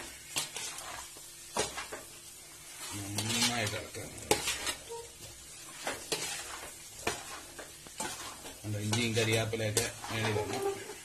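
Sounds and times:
light sizzle: 0.0s - 11.0s
spoon scraping metal pot: 3.2s - 11.0s.

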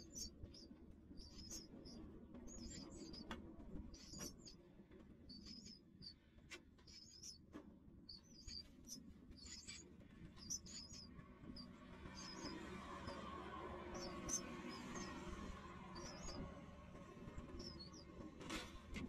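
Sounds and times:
nestlings cheeping: 0.0s - 3.2s, 5.3s - 5.8s, 8.1s - 13.2s, 14.0s - 16.4s, 17.5s - 18.0s.

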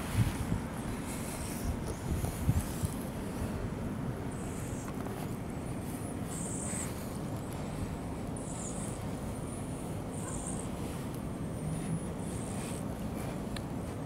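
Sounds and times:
low rumble of wind or traffic: 0.0s - 14.0s.

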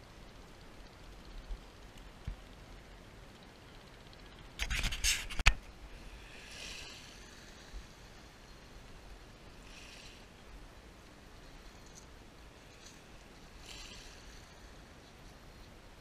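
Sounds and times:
small waves on pebble shore: 6.0s - 8.6s, 9.4s - 10.4s, 12.5s - 14.9s.

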